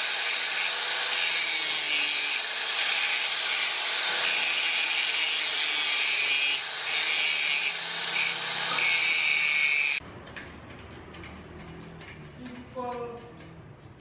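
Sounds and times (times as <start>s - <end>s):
tool cutting steel rasping: 0.0s - 13.6s.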